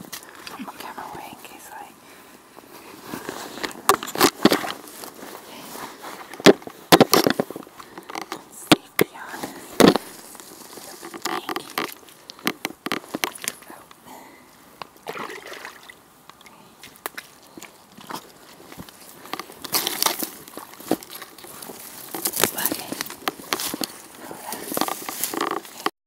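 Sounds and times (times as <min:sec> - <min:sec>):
boots splashing through muddy water: 0:15.0 - 0:16.0, 0:16.8 - 0:23.3.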